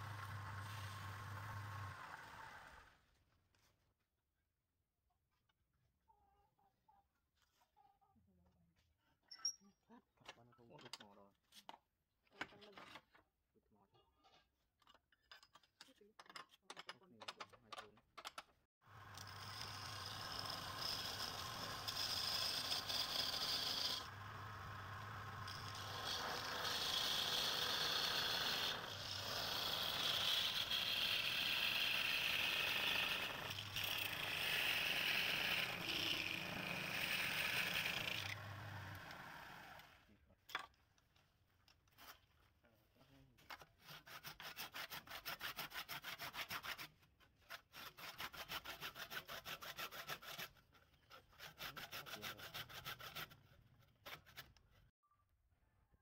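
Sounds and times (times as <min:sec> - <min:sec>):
lathe tool scraping wood: 0:00.0 - 0:02.8, 0:19.0 - 0:40.0.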